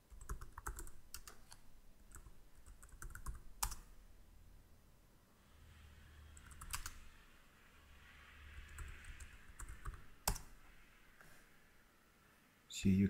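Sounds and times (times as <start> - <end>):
keyboard typing: 0.1 - 3.9, 6.4 - 7.1, 8.6 - 10.6.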